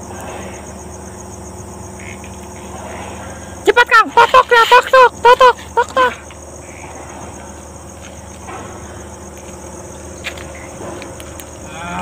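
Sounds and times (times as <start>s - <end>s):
crickets chirping: 0.0s - 12.0s
low hum: 0.0s - 12.0s.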